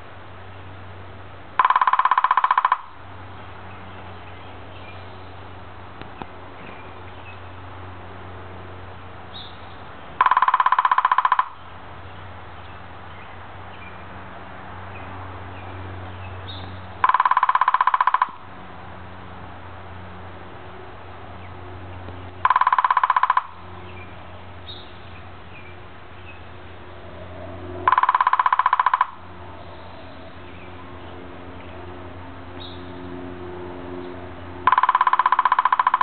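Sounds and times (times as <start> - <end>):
woodpecker drumming on bamboo: 1.6 - 3.0, 10.1 - 11.8, 17.0 - 18.5, 22.3 - 24.1, 27.8 - 29.3, 34.6 - 36.0.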